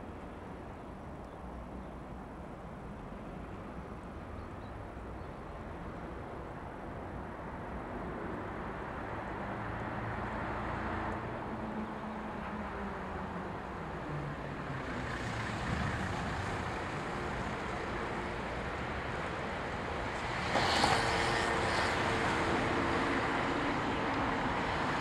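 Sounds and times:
diesel locomotive engine drone: 9.6 - 25.0.

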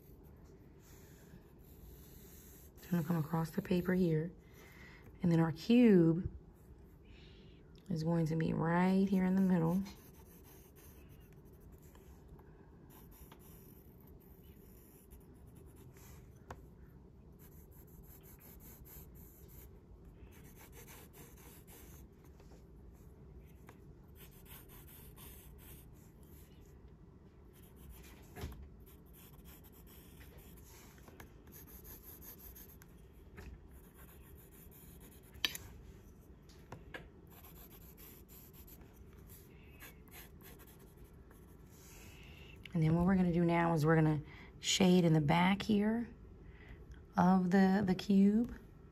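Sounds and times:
pencil scratching on paper: 0.8 - 4.0, 9.1 - 12.2, 12.9 - 16.6, 17.3 - 22.1, 23.5 - 26.7, 27.5 - 32.9, 33.7 - 35.5, 37.3 - 42.0.

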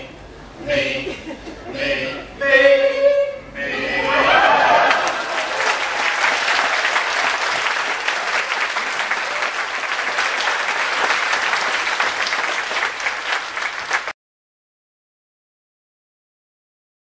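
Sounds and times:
audience applauding: 4.3 - 14.2.

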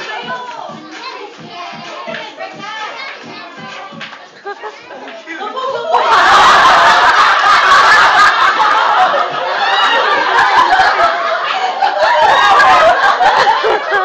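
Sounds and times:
group of people laughing: 4.2 - 14.0.

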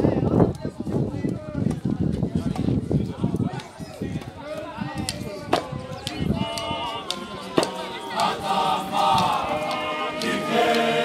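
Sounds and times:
men singing a chant: 8.1 - 11.0.

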